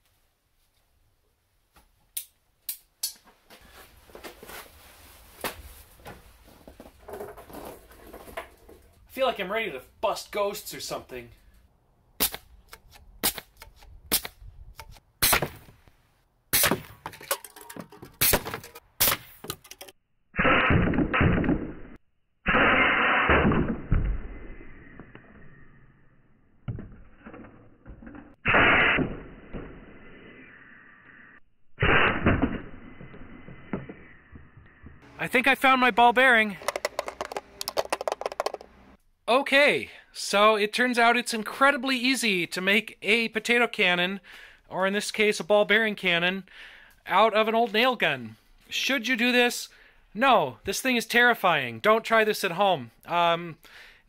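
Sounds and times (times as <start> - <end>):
fabric and straps rustling: 3.5 - 6.8
compressed air blast: 22.5 - 23.6, 28.4 - 29.1, 31.8 - 32.5.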